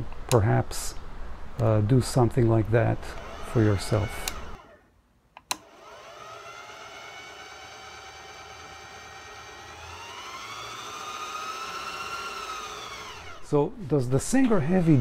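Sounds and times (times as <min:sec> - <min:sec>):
sewing machine motor whine: 0:03.1 - 0:04.9, 0:05.6 - 0:13.5
switch click: 0:05.4 - 0:05.7.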